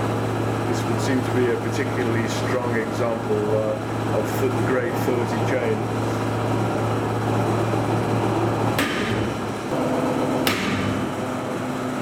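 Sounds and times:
hydraulic machine humming: 0:00.0 - 0:12.0.

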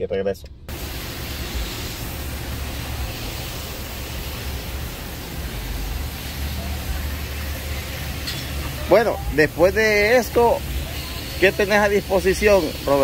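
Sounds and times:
low uneven rumble: 0:00.7 - 0:12.9
steady rushing noise: 0:00.7 - 0:13.0.

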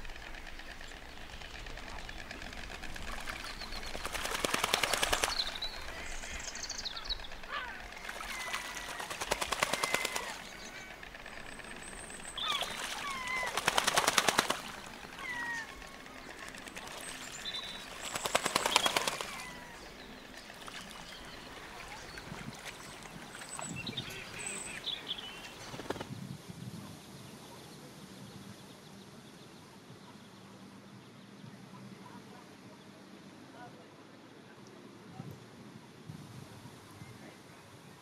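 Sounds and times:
duck rattling calls: 0:00.0 - 0:20.8.

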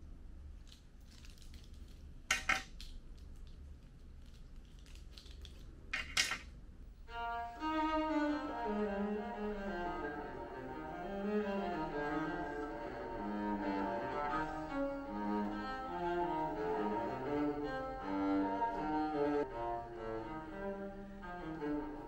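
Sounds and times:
low room hum: 0:00.0 - 0:22.0
cello bowed melody: 0:07.1 - 0:22.0.

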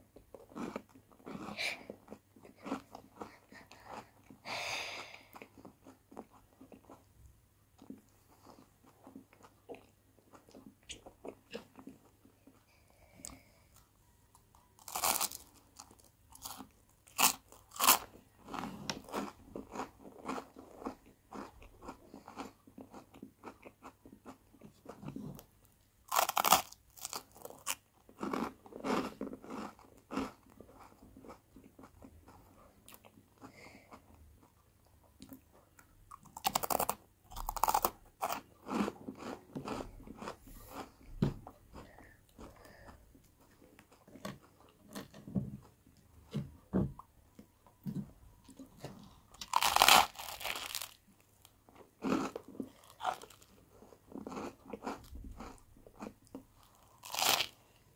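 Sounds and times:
soft chewing: 0:00.0 - 0:57.9
crunching toasted bread: 0:14.8 - 0:22.9, 0:26.1 - 0:30.9, 0:36.2 - 0:40.3, 0:49.4 - 0:53.5, 0:54.1 - 0:57.6.

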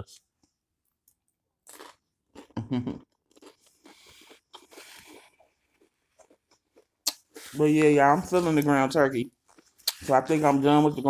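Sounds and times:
crunching and chewing chip: 0:01.6 - 0:07.5, 0:09.3 - 0:10.1.

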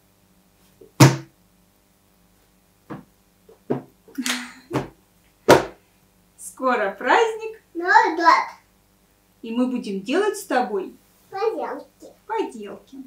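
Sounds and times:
palms slapping a tabletop: 0:00.8 - 0:01.3, 0:02.9 - 0:05.8.

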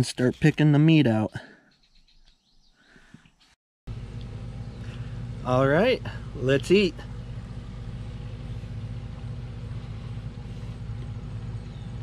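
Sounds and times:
low mechanical hum: 0:03.9 - 0:12.0.

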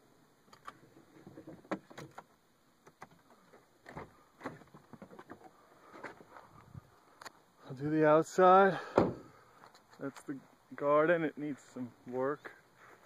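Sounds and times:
clicks and rustles inside car: 0:00.6 - 0:06.4.

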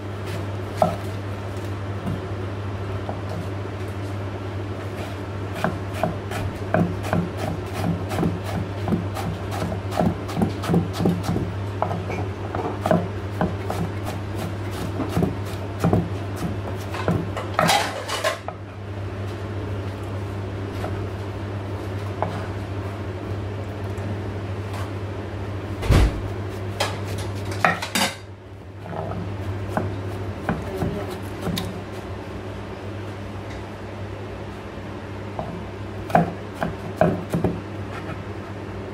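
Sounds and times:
steady low hum: 0:00.0 - 0:38.9
loud thump: 0:25.8 - 0:26.3.

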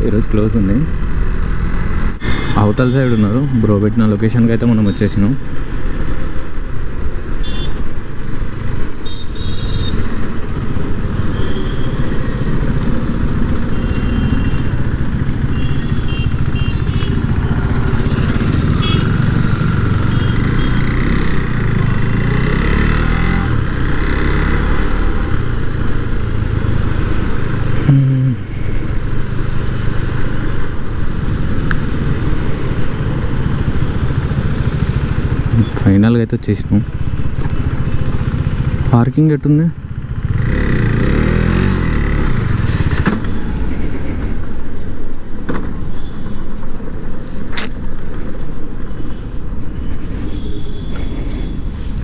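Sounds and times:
road and wind noise: 0:00.0 - 0:52.0
motorcycle engine: 0:00.6 - 0:02.5, 0:09.1 - 0:35.8, 0:39.8 - 0:44.5.

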